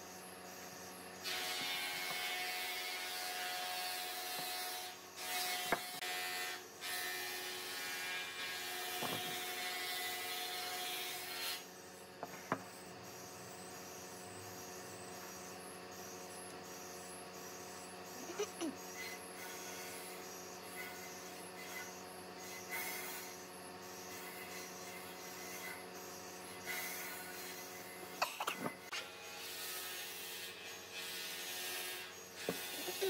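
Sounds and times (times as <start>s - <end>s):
power tool motor whirring: 1.2s - 11.7s, 28.8s - 33.0s.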